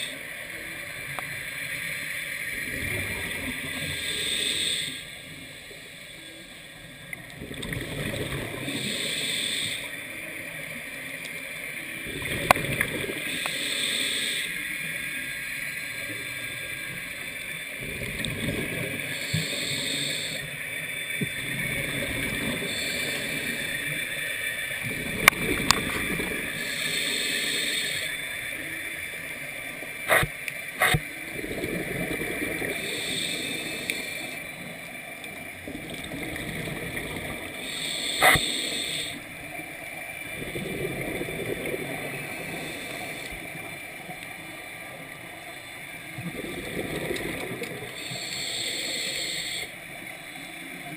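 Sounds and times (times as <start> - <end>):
regulator hiss on inhale: 3.6 - 6.7, 8.6 - 10.3, 13.2 - 17.6, 19.0 - 21.2, 22.4 - 24.8, 26.5 - 29.3, 32.6 - 34.8, 37.4 - 39.4, 42.1 - 44.5, 47.0 - 50.9
bubbles gurgling: 7.4 - 8.7, 12.0 - 13.2, 17.8 - 19.0, 24.8 - 26.6, 30.9 - 32.9, 35.6 - 37.7, 40.2 - 42.8, 46.1 - 48.0.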